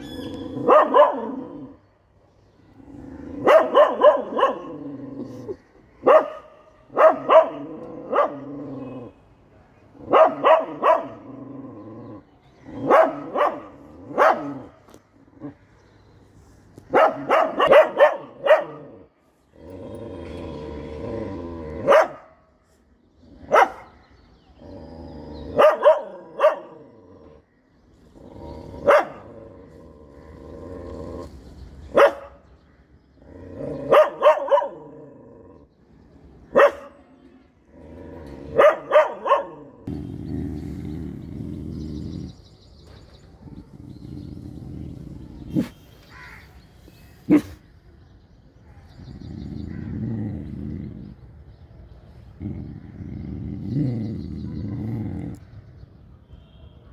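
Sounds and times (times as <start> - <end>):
dog barking: 0.6 - 1.5, 3.4 - 4.7, 6.0 - 8.5, 10.1 - 11.2, 12.8 - 14.7, 16.9 - 19.0, 21.8 - 22.4, 23.5 - 23.9, 25.6 - 26.8, 28.8 - 29.3, 31.9 - 32.4, 33.9 - 34.9, 36.6 - 37.0, 38.5 - 39.8, 47.3 - 47.6
dog growling: 18.9 - 22.0, 28.1 - 31.4, 39.8 - 42.4, 43.6 - 45.7, 49.0 - 51.5, 52.3 - 55.5.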